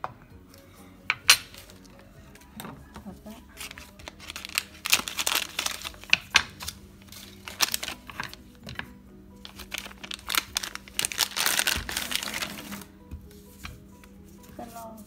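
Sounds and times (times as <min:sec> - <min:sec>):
soft background music: 0:00.0 - 0:15.0
food packaging crinkling: 0:03.6 - 0:08.5, 0:09.4 - 0:12.9.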